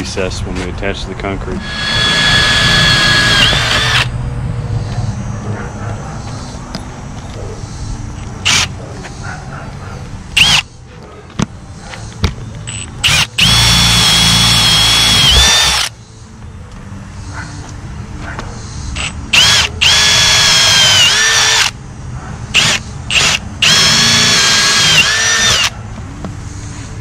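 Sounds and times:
cordless drill whining: 0:01.6 - 0:04.1, 0:08.4 - 0:08.7, 0:10.4 - 0:10.6, 0:12.7 - 0:15.9, 0:19.3 - 0:21.8, 0:22.6 - 0:25.7.

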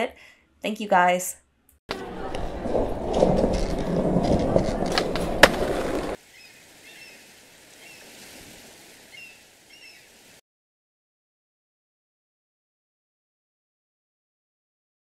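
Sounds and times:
outdoor ambience: 0:01.4 - 0:10.4
skateboard clacks: 0:01.9 - 0:06.2
skateboard wheels rolling: 0:01.9 - 0:06.2
bird chirps: 0:09.1 - 0:10.1.

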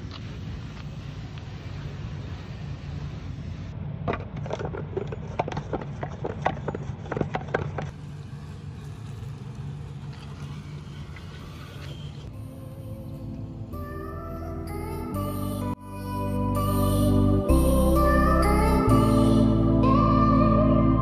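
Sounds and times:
low rumble: 0:07.9 - 0:21.0
background music with soft held notes: 0:12.3 - 0:21.0.

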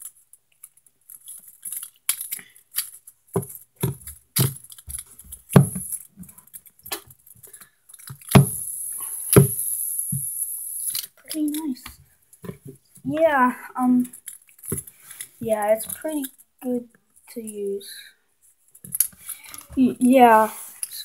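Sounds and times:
steady hiss: 0:08.1 - 0:11.9.

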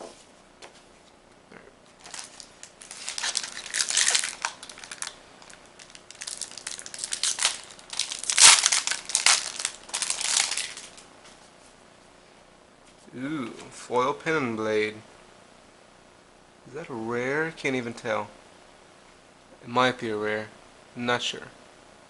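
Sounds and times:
foil wrapper crinkling and tearing: 0:02.0 - 0:11.0.

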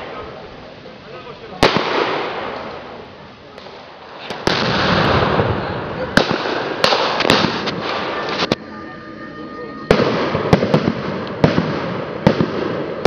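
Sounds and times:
blank gunfire bangs: 0:01.6 - 0:02.6, 0:06.2 - 0:08.3.

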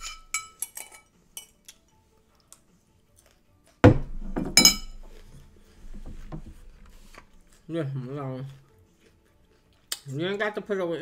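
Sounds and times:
cutlery clinking against dishes: 0:00.0 - 0:01.9, 0:04.5 - 0:05.2.

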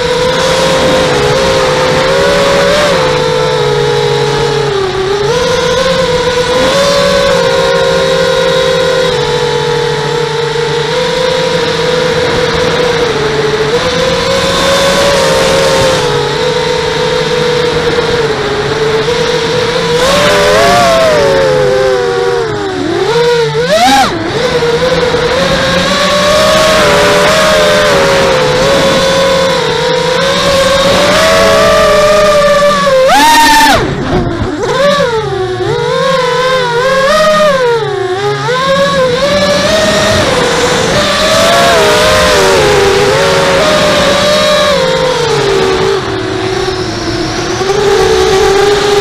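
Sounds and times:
drone propellers whining: 0:00.0 - 0:49.0.

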